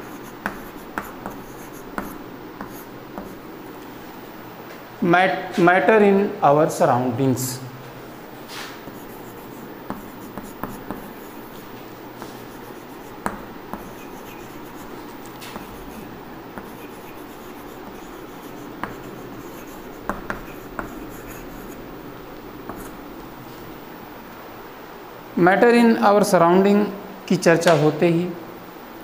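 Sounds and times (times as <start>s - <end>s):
chalk writing on chalkboard: 0.0s - 3.4s, 8.5s - 21.9s, 22.6s - 23.0s
steady background hiss: 0.0s - 29.0s.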